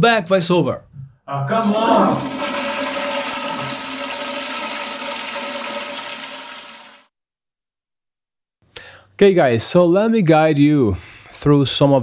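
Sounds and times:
rushing gurgling water: 0:02.2 - 0:07.1.

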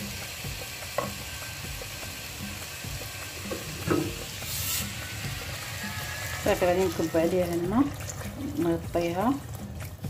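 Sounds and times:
low sizzle of frying: 0:00.0 - 0:10.0
spoon knocking against pot: 0:03.4 - 0:04.3.

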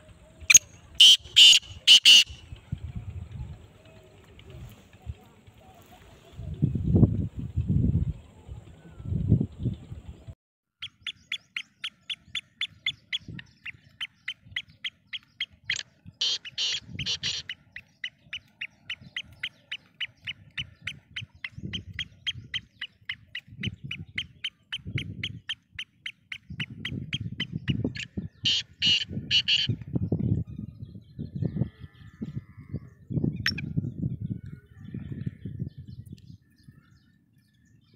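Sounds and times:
bird calling with clicking notes: 0:00.4 - 0:02.7, 0:10.8 - 0:29.9
bird harsh notes: 0:00.5 - 0:02.5, 0:10.8 - 0:29.7.

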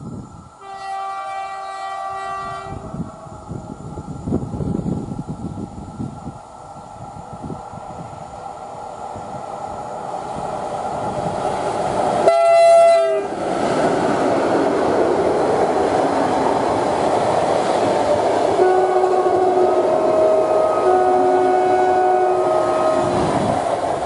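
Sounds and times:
train passing with rush and clatter: 0:00.0 - 0:24.0
locomotive horn blast: 0:00.6 - 0:03.0, 0:12.2 - 0:13.3, 0:18.6 - 0:23.3.

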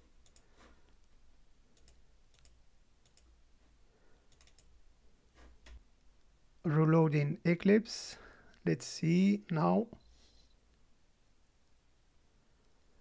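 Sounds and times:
computer mouse clicks: 0:00.2 - 0:01.1, 0:01.7 - 0:03.3, 0:04.3 - 0:04.7.

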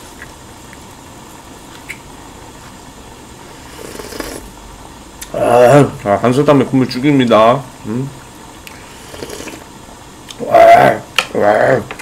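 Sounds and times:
person slurping broth: 0:03.5 - 0:04.5, 0:08.7 - 0:09.7.

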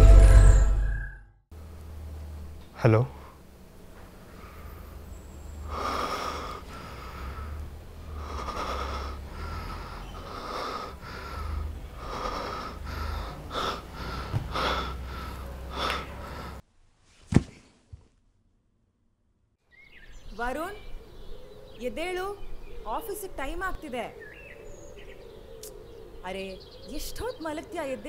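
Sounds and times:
heavy breathing over phone line: 0:04.3 - 0:04.9, 0:05.6 - 0:16.6.

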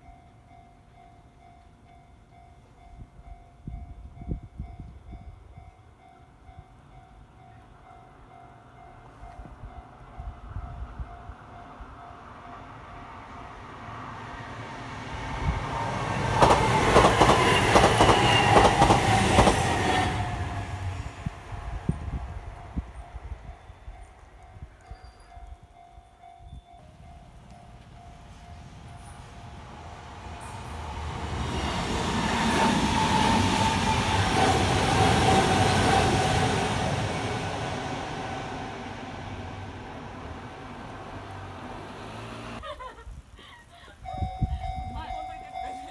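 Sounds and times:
electric train passing: 0:00.0 - 0:42.7, 0:44.1 - 0:45.9
train wheels clacking over rail joints: 0:16.3 - 0:19.8
level crossing warning bell: 0:22.6 - 0:29.7, 0:44.0 - 0:45.9.

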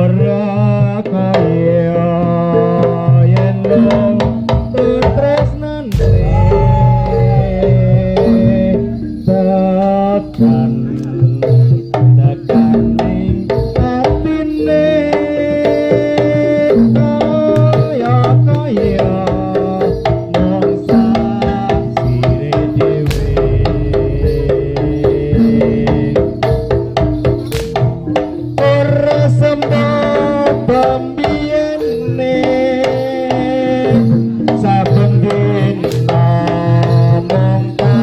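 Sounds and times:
hand drums beating rhythm: 0:00.0 - 0:38.0
held-note melody: 0:03.8 - 0:13.4, 0:22.0 - 0:38.0.

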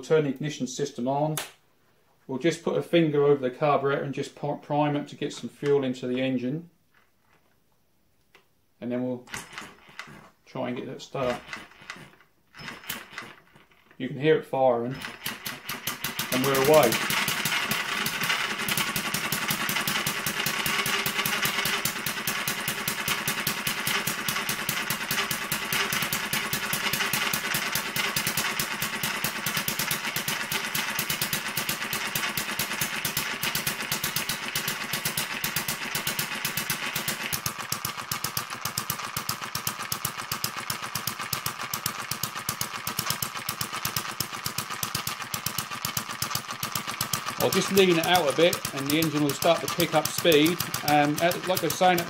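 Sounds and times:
small engine clattering: 0:09.3 - 0:10.4, 0:11.1 - 0:14.0, 0:14.8 - 0:52.0.

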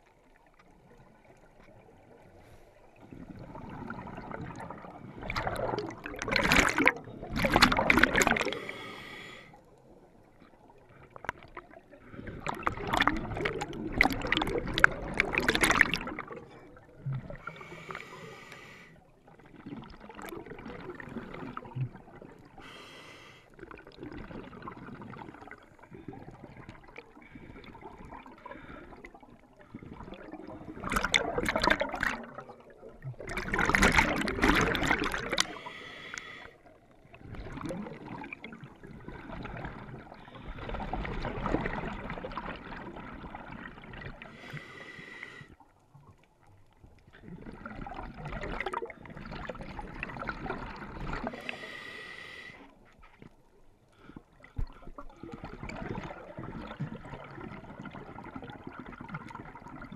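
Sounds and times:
exhaled bubbles bursting: 0:03.0 - 0:08.8, 0:10.6 - 0:17.7, 0:19.4 - 0:22.6, 0:23.6 - 0:35.7, 0:37.0 - 0:44.4, 0:47.1 - 0:51.6, 0:54.0 - 0:59.9
hissing scuba inhalations: 0:08.3 - 0:09.7, 0:17.3 - 0:19.0, 0:22.6 - 0:23.6, 0:35.2 - 0:36.7, 0:44.2 - 0:45.6, 0:51.2 - 0:52.8.

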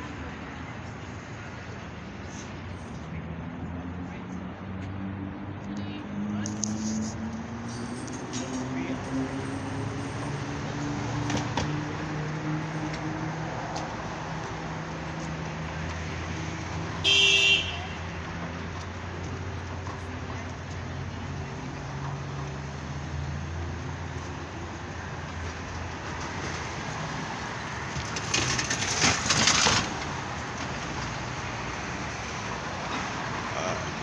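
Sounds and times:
street traffic engine hum: 0:00.0 - 0:34.0
car horn toot: 0:17.0 - 0:18.0.

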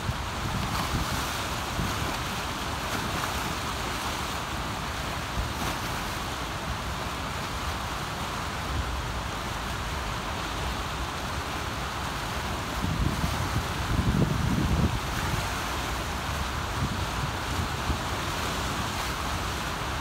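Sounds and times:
wind rumble on microphone: 0:00.0 - 0:05.9, 0:12.2 - 0:20.0
rushing churning water: 0:00.0 - 0:20.0.

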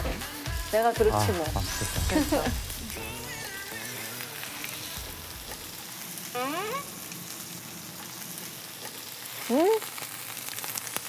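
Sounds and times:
meat sizzling on grill pan: 0:00.1 - 0:11.0
short rising tone: 0:01.2 - 0:03.9.

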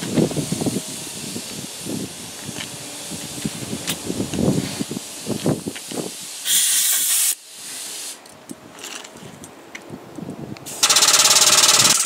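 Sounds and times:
compressed air hissing: 0:00.0 - 0:08.2, 0:10.6 - 0:12.0
air pump pulsing: 0:10.8 - 0:12.0
couplers clicking: 0:10.8 - 0:12.0.

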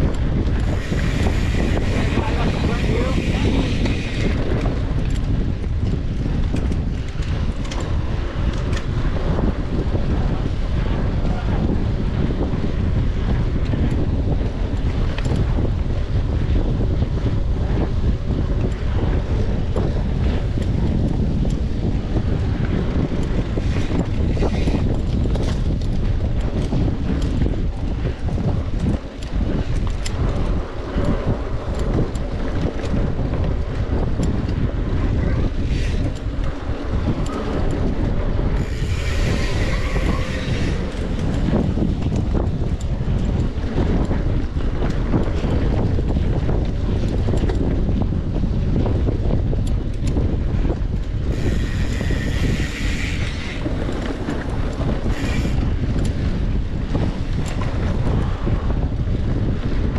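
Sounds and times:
bike clattering on trail: 0:00.0 - 0:59.9
wind buffeting microphone: 0:00.0 - 0:59.9.

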